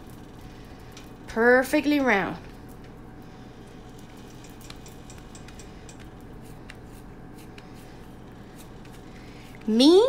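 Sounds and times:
low steady hum: 0:00.0 - 0:10.0
hands patting dough: 0:04.4 - 0:09.8.

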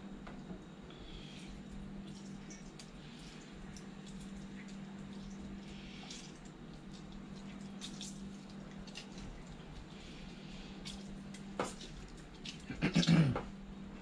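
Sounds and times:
lime juice dripping and squishing: 0:01.6 - 0:12.7.

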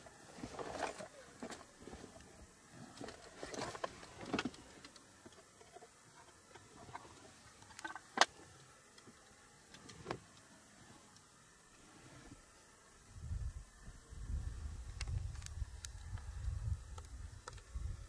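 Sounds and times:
faint clicks and knocks: 0:02.9 - 0:10.5.

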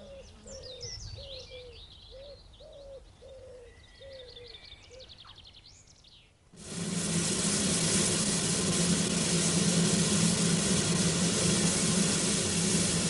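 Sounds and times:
hiss of escaping steam: 0:06.6 - 0:13.0
low hum: 0:06.6 - 0:13.0.

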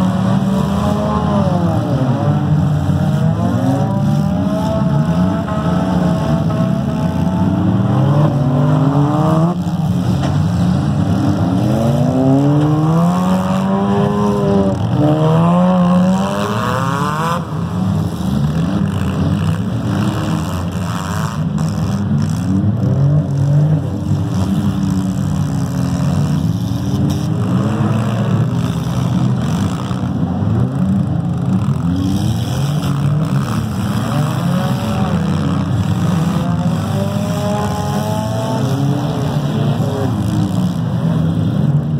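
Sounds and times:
car engines revving: 0:00.0 - 0:41.9.

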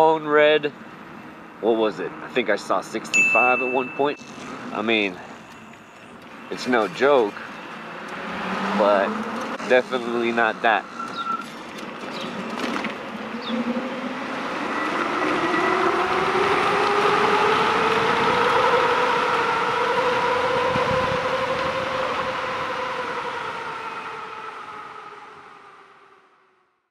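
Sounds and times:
wind rush: 0:13.0 - 0:23.7.

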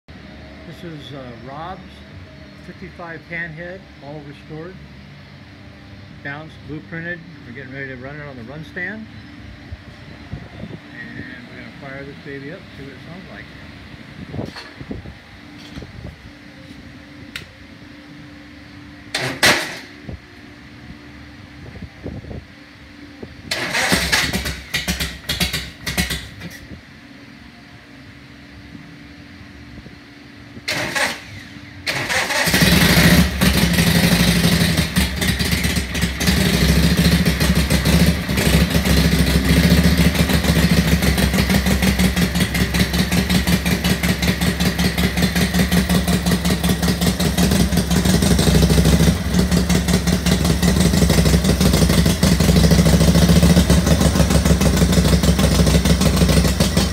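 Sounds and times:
motorcycle engine cranking: 0:23.5 - 0:26.6, 0:30.7 - 0:56.9
motorcycle engine running: 0:23.5 - 0:26.8, 0:30.7 - 0:56.9.

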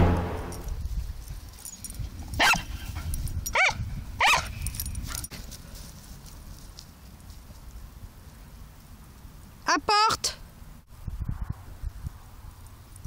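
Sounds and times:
music track: 0:00.0 - 0:00.8
dog barking high-pitched: 0:02.4 - 0:02.6, 0:03.5 - 0:04.5.

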